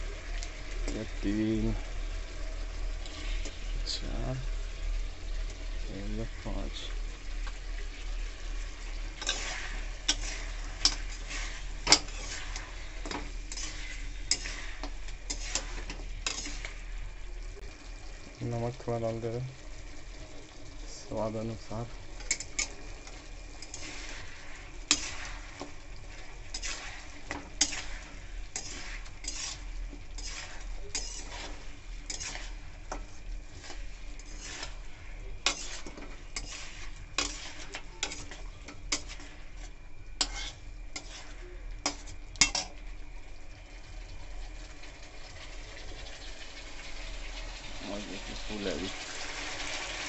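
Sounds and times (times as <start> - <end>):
low sizzle: 0.0 - 50.0
metal spatula scraping a pan: 0.8 - 4.3, 8.0 - 17.2, 21.2 - 42.9.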